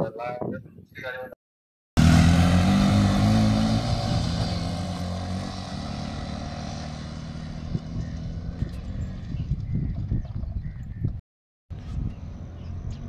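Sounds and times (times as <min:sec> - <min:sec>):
motorcycles accelerating away: 0:02.0 - 0:09.6.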